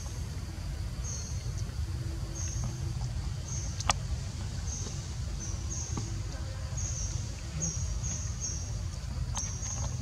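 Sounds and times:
insect buzzing: 0:05.0 - 0:08.7.

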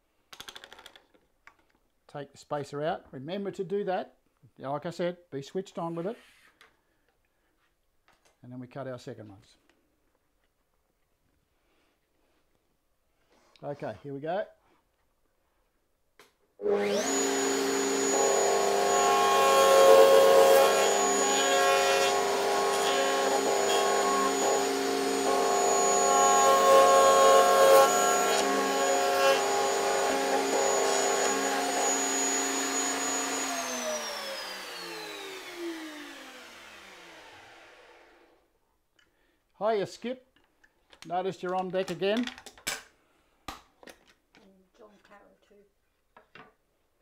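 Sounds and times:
router whining: 0:16.6 - 0:38.4
router winding down: 0:16.6 - 0:38.4.

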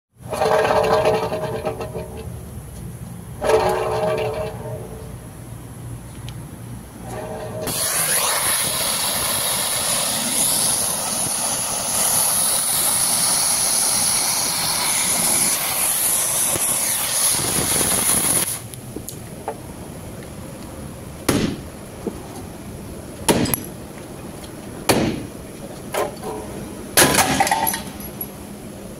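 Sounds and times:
torch flame hissing: 0:07.1 - 0:18.8.

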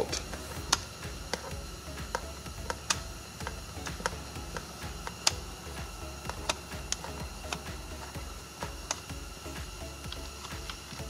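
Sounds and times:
faint background music: 0:00.0 - 0:11.0
low hum: 0:00.0 - 0:11.0
screwdriver clicking: 0:06.2 - 0:09.2.

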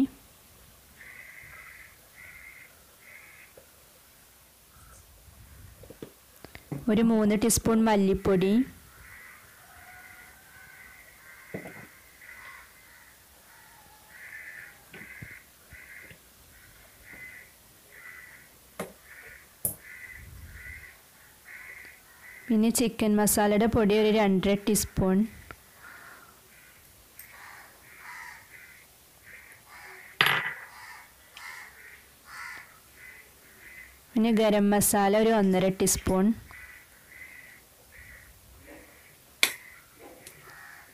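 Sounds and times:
birds calling: 0:00.9 - 0:22.7, 0:24.7 - 0:34.2, 0:35.2 - 0:40.9
short repeated bird calls: 0:25.5 - 0:34.0, 0:36.5 - 0:40.9.

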